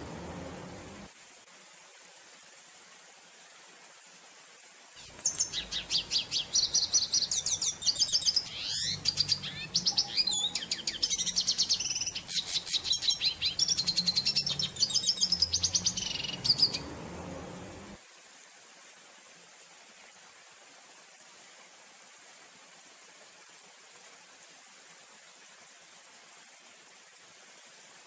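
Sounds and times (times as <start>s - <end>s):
bird twittering song: 5.0s - 16.9s.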